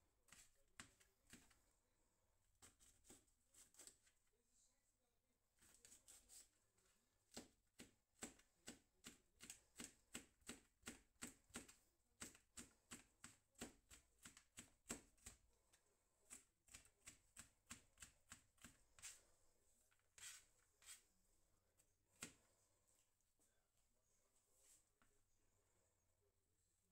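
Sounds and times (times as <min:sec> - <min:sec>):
knife chopping on plastic board: 0:07.3 - 0:15.4.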